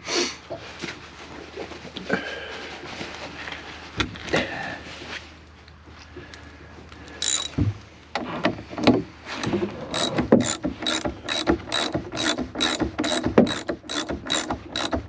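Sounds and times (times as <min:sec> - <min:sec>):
ratchet wrench clicking: 0:07.2 - 0:07.6, 0:09.9 - 0:15.0
wrench knocking and clunking: 0:07.2 - 0:15.0.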